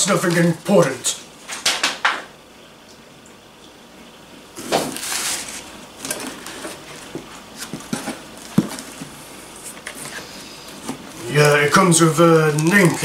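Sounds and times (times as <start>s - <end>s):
cardboard packaging rustling: 0.0s - 1.0s, 4.6s - 13.0s.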